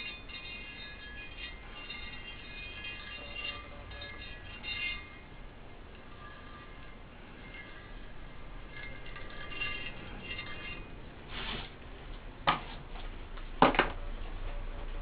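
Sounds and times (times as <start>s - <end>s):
faint high ringing tones: 0.0s - 11.2s.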